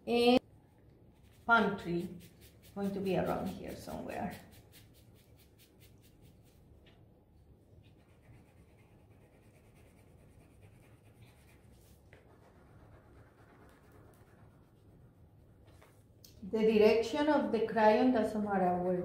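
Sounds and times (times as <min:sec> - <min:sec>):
crayon scratching on paper: 0:01.2 - 0:06.6, 0:07.8 - 0:16.0.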